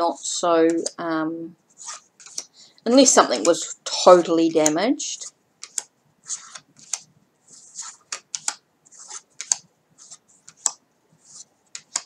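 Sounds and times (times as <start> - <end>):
cards snapping and sliding: 1.8 - 2.5, 5.6 - 12.0.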